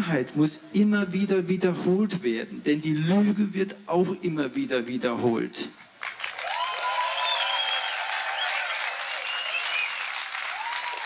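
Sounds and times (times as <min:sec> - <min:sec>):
audience applauding: 0:06.0 - 0:11.0
long calls from crowd: 0:06.4 - 0:11.0.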